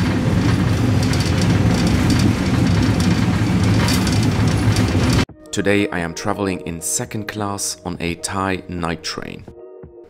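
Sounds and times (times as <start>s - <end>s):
train interior rumble: 0.0s - 5.3s
wheels clicking and rattling: 0.0s - 5.3s.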